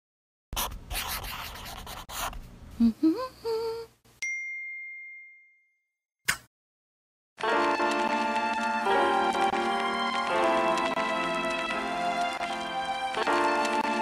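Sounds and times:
scratchy scribbling: 0:00.6 - 0:02.4
bright ding: 0:04.2 - 0:05.8.

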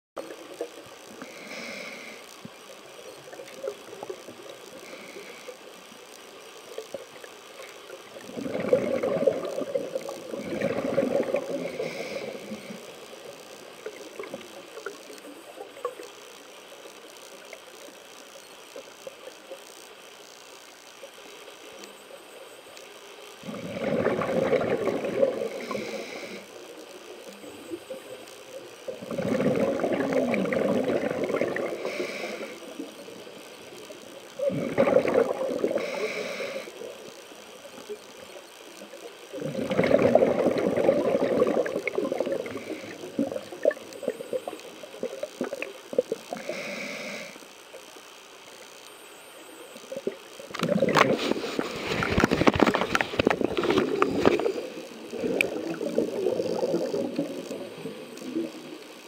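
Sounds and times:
regulator hissing inhalations: 0:01.2 - 0:02.4, 0:11.5 - 0:13.0, 0:25.3 - 0:26.6, 0:31.7 - 0:32.8, 0:35.6 - 0:37.0, 0:42.3 - 0:43.4, 0:46.3 - 0:47.5
bubbling exhalations: 0:08.2 - 0:12.8, 0:23.4 - 0:25.9, 0:29.0 - 0:32.0, 0:34.4 - 0:36.0, 0:39.4 - 0:43.8, 0:50.0 - 0:58.6.

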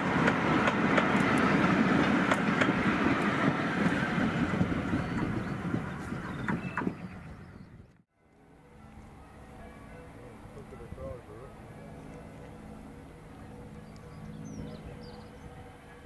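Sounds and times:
train wheels clicking over rail joints: 0:00.0 - 0:07.2
train rumble: 0:00.0 - 0:08.0.

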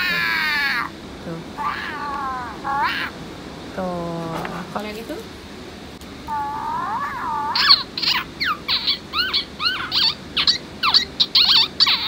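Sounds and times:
electronic toy squeaks: 0:06.9 - 0:12.0.

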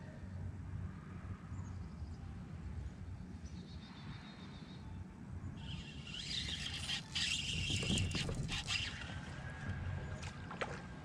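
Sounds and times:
fishing reel whirring: 0:05.6 - 0:09.4.

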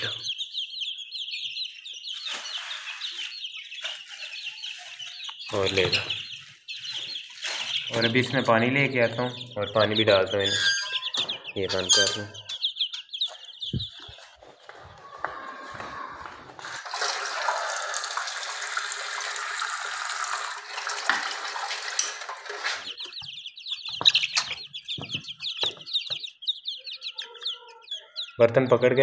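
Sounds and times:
chicks peeping: 0:00.0 - 0:17.1, 0:21.4 - 0:29.0
tap water running into bowl: 0:16.6 - 0:22.6.

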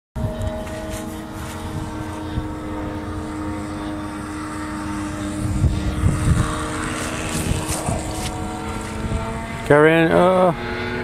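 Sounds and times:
model plane engine idling: 0:00.2 - 0:11.0.

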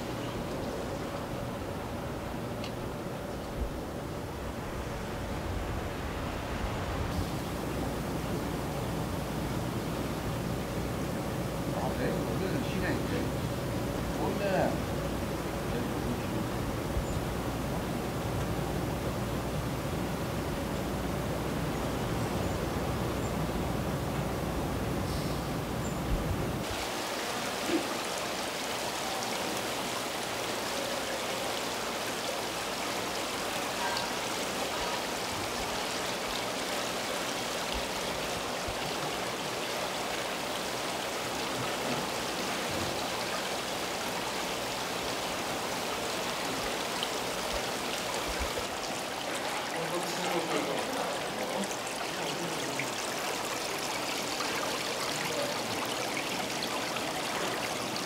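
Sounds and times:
water pouring into tanks: 0:26.6 - 0:58.0.

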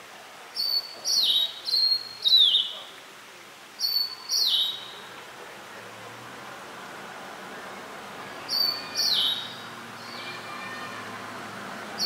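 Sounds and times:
bird singing whistled phrases: 0:00.6 - 0:02.8, 0:03.8 - 0:04.9, 0:08.5 - 0:10.3.

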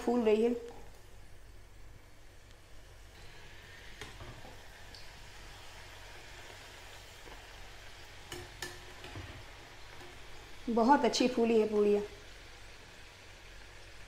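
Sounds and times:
food sizzling in hot oil: 0:00.0 - 0:14.0
metal spoon clicking on pan: 0:08.3 - 0:08.8.

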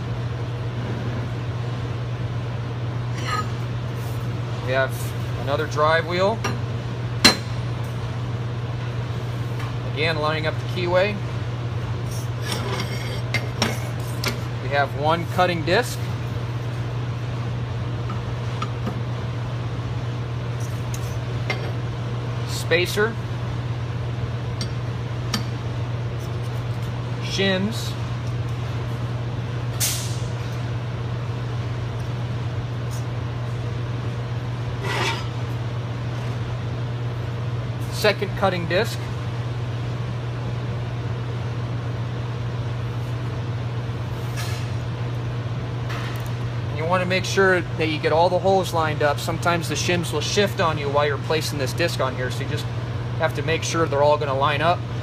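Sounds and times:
steady low hum: 0:00.0 - 0:55.0
steel disc scraping: 0:34.8 - 0:35.3.

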